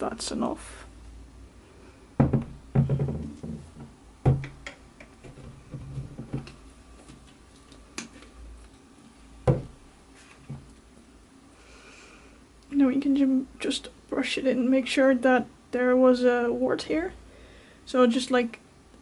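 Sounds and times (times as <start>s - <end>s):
knocks and thuds on tabletop: 2.2s - 6.6s, 9.4s - 9.8s.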